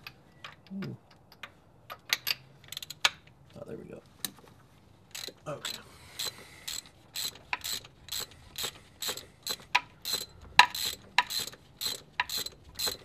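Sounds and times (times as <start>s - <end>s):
ratchet wrench clicking: 2.1s - 3.2s, 5.1s - 13.0s.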